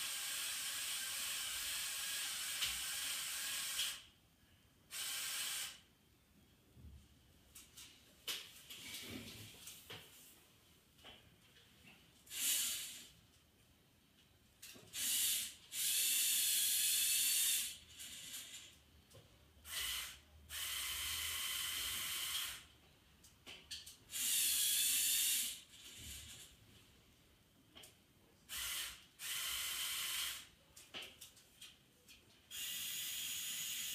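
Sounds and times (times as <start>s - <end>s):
small electric motors whirring: 0.0s - 4.0s, 4.9s - 5.8s, 12.3s - 13.1s, 14.9s - 18.8s, 19.7s - 22.7s, 24.1s - 26.5s, 28.5s - 30.5s, 32.5s - 33.9s.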